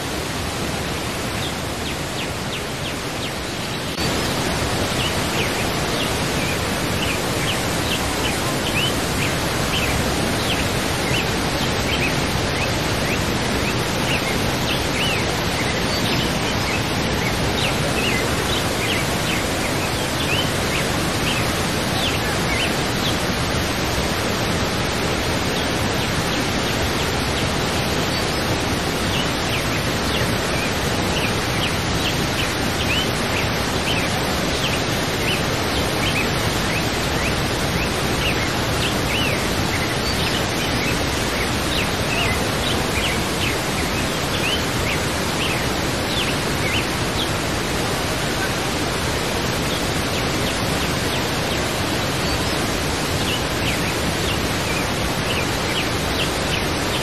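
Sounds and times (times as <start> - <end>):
waterfall rushing: 0.0 - 57.0
small birds chirping: 24.8 - 52.6.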